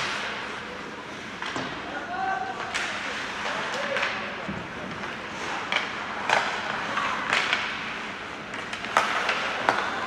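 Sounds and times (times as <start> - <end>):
skate blades scraping ice: 0.0 - 1.4, 2.9 - 10.0
sticks striking puck: 2.6 - 10.0.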